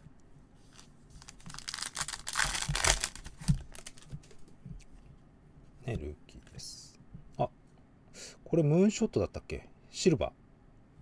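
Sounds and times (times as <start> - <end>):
foil wrapper crinkling and tearing: 0.7 - 4.1.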